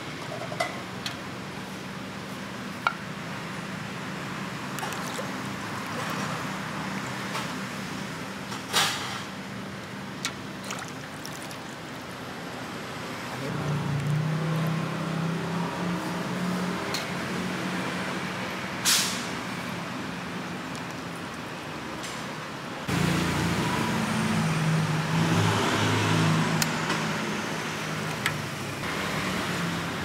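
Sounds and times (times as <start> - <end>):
short sharp hiss: 18.8 - 19.3
heavier engine: 22.0 - 30.0.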